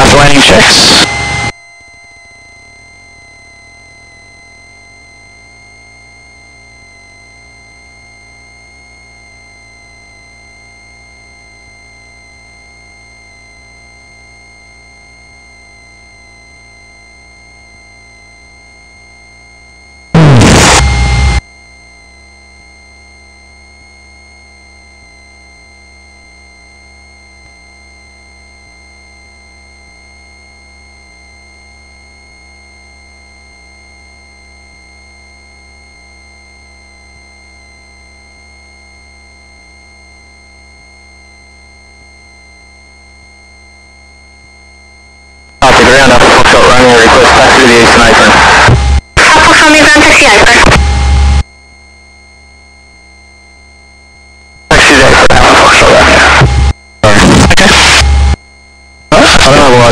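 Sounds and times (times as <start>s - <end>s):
burst of radio static: 0.0s - 1.5s, 20.2s - 21.4s, 45.6s - 51.4s, 54.7s - 58.4s, 59.1s - 59.9s
intercom hiss and hum: 0.0s - 1.5s, 20.2s - 21.4s, 45.6s - 51.4s, 54.7s - 58.4s, 59.1s - 59.9s
muffled aircraft engine drone: 45.6s - 58.4s.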